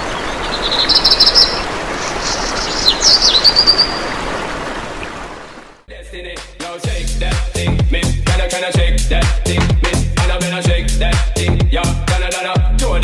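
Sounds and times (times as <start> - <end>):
small birds chirping: 0.0 - 5.1.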